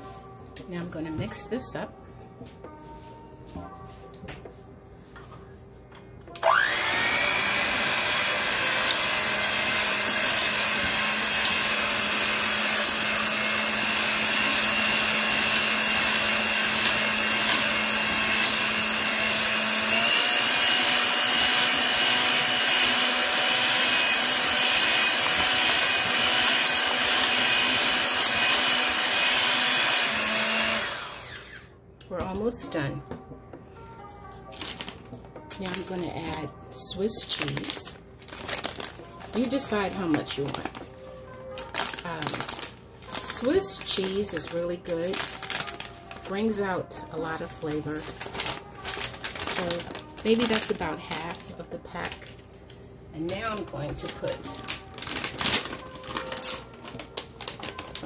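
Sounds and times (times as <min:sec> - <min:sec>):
electric hand mixer whirring: 0:06.3 - 0:31.8.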